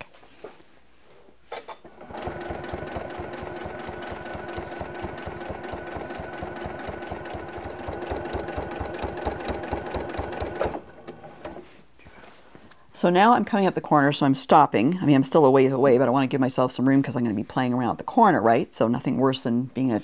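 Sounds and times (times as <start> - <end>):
sewing machine stitching: 1.8 - 11.7.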